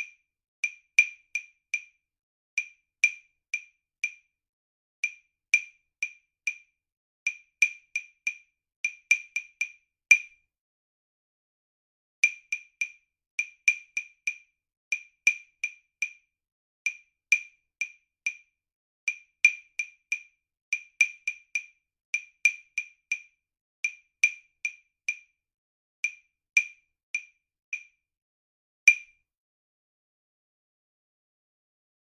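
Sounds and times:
woodblock clicks: 0.0s - 2.0s, 2.6s - 4.3s, 5.0s - 6.7s, 7.3s - 10.4s, 12.2s - 16.2s, 16.9s - 18.5s, 19.1s - 25.4s, 26.0s - 28.0s, 28.9s - 29.2s.

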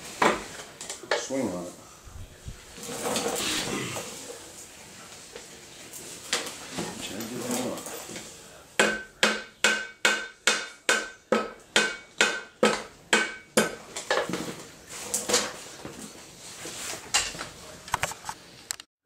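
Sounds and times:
rubber mallet striking metal: 8.8s - 13.8s.

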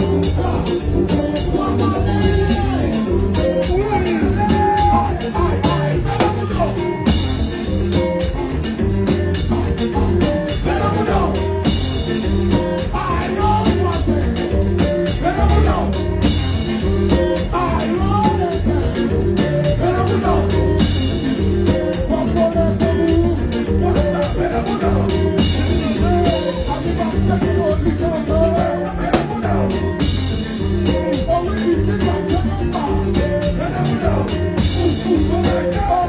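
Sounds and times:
person singing: 0.0s - 7.2s, 9.5s - 30.0s, 30.8s - 36.0s
drum kit beat: 0.0s - 36.0s
guitar: 0.0s - 36.0s
live band playing: 0.0s - 36.0s.

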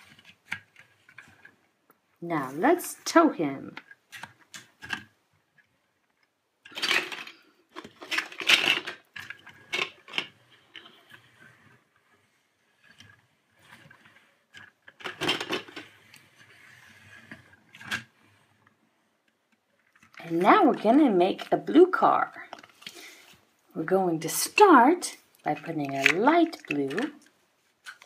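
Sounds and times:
faint handling noise: 0.0s - 28.0s
plastic toy trucks clattering: 3.7s - 18.4s, 24.3s - 28.0s.

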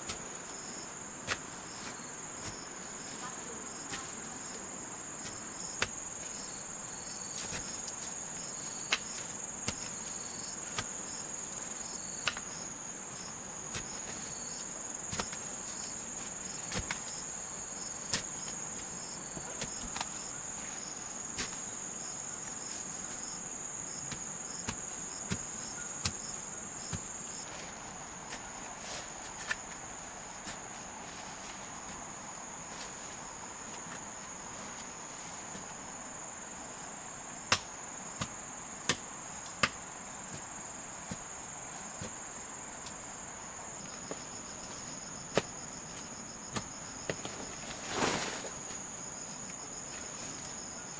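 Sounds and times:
crickets chirping: 0.0s - 50.9s
hoe chopping into soil: 12.2s - 12.6s, 15.1s - 15.9s, 16.6s - 17.2s, 37.5s - 41.2s, 45.3s - 48.6s.

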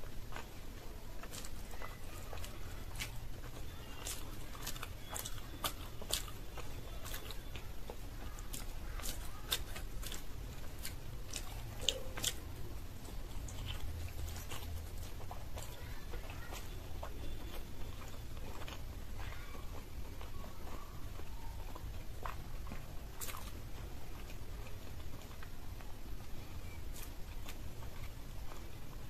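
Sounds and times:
chewing and biting: 0.0s - 29.0s
low steady hum: 0.0s - 29.0s
mouth clicks: 2.4s - 12.6s.

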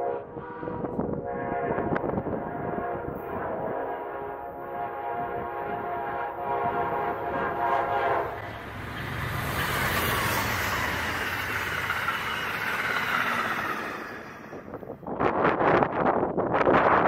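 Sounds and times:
locomotive horn: 0.0s - 8.7s
train rushing past: 0.0s - 16.3s.

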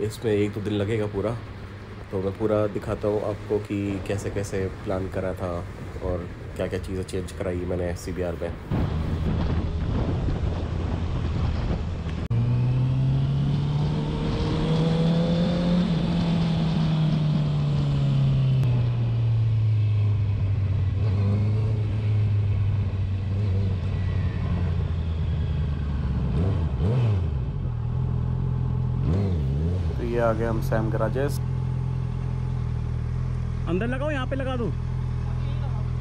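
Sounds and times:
wind and road noise: 0.0s - 36.0s
motorcycle engine revving: 8.7s - 36.0s.

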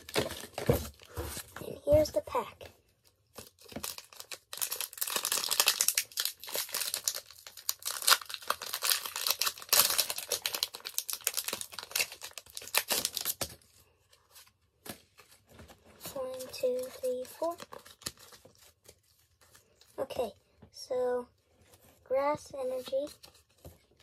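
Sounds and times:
foil wrapper tearing and crinkling: 3.4s - 13.6s, 16.3s - 19.5s.

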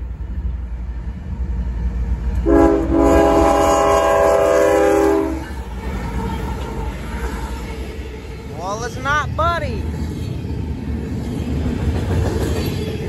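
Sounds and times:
train rumble: 0.0s - 13.0s
locomotive air horn: 2.4s - 5.5s.

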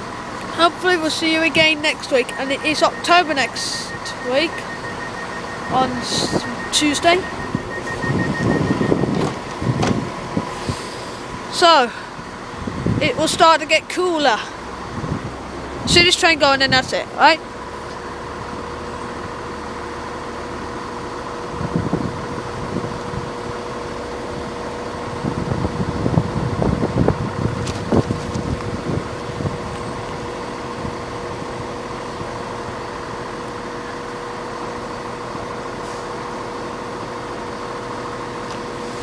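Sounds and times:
diesel train idling hum: 0.0s - 39.0s.

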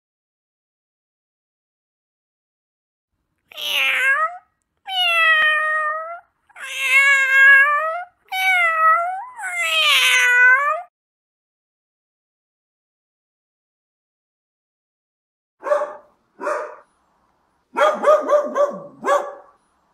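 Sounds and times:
cat meowing: 3.5s - 10.9s.

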